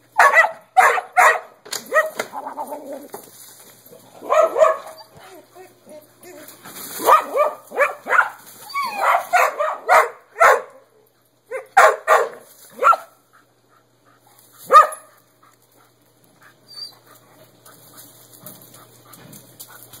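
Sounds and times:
dogs barking: 0:00.2 - 0:02.2, 0:04.2 - 0:05.1, 0:07.0 - 0:10.9, 0:11.5 - 0:13.2, 0:14.7 - 0:15.2.

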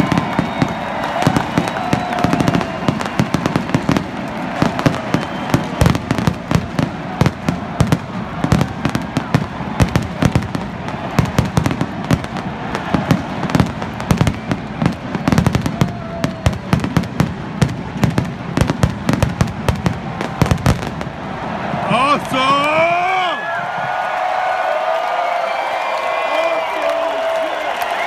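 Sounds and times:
fireworks bangs and crackles: 0:00.0 - 0:24.0.

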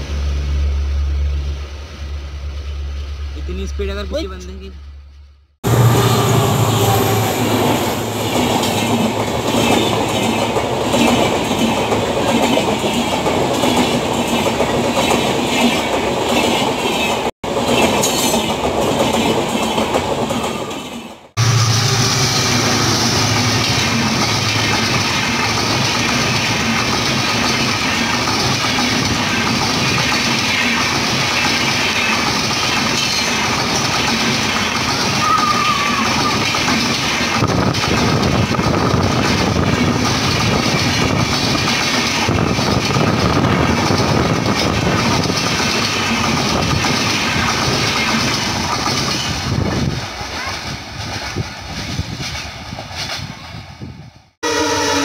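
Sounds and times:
diesel engine humming: 0:00.0 - 0:09.2
train coaches rumbling on track: 0:05.6 - 0:55.0.

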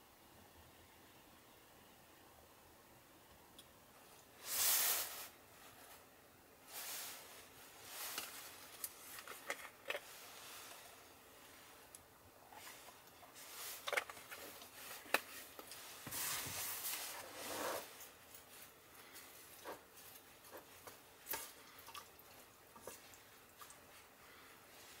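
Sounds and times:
rustling: 0:04.4 - 0:25.0.

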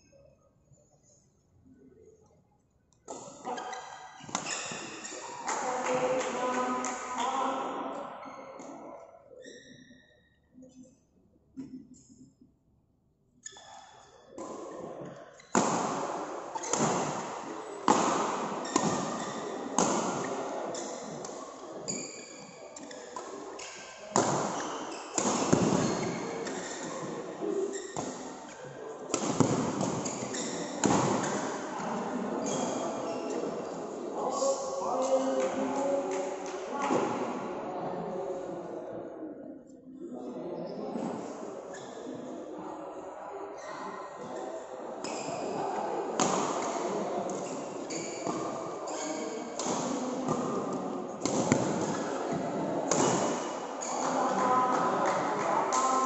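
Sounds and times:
echoing hall background noise: 0:00.0 - 0:56.0
racket hitting shuttlecock: 0:03.1 - 0:07.3, 0:15.5 - 0:21.4, 0:22.8 - 0:27.2, 0:27.8 - 0:28.3, 0:29.1 - 0:32.8, 0:46.2 - 0:47.6, 0:49.6 - 0:55.8.

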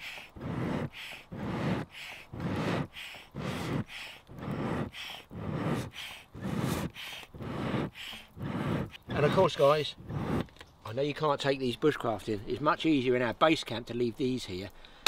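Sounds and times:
hand bellows whooshing air: 0:00.0 - 0:10.5.

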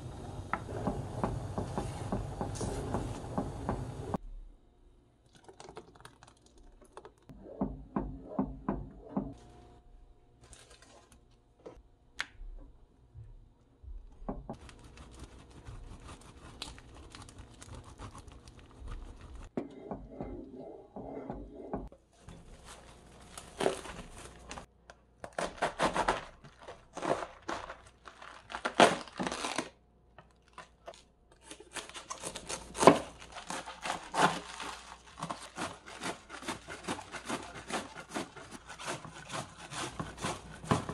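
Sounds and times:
wooden spoon stirring in pot: 0:34.6 - 0:40.9
knife chopping cabbage on board: 0:35.2 - 0:40.9.

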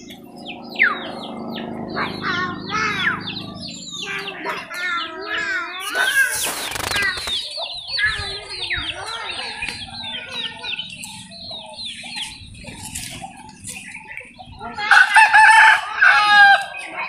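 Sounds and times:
small birds chirping: 0:00.0 - 0:17.0
short rush of noise: 0:05.8 - 0:07.4.

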